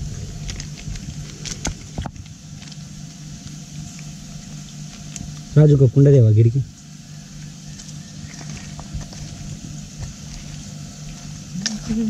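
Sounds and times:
low background rumble: 0.0s - 12.0s
plastic sachet crinkling: 0.3s - 5.5s.

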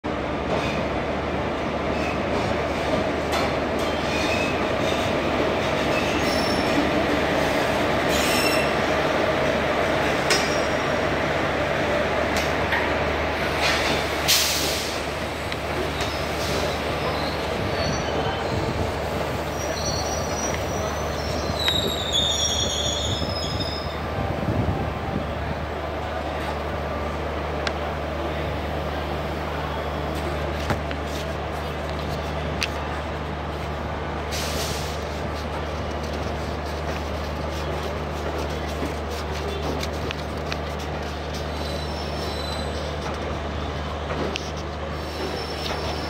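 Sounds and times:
train wheels rumbling on rails: 0.1s - 46.0s
brief high squeals: 19.6s - 24.0s.

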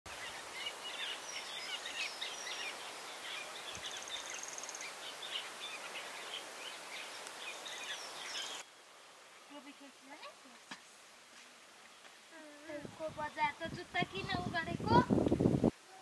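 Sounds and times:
small birds chirping: 0.1s - 11.1s
light steady hiss: 0.1s - 16.0s.

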